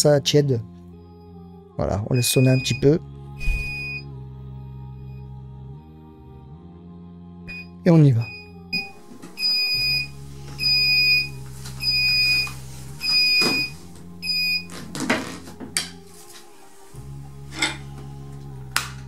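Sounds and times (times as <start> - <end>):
timer alarm beeping: 2.2 - 4.0, 7.5 - 14.7.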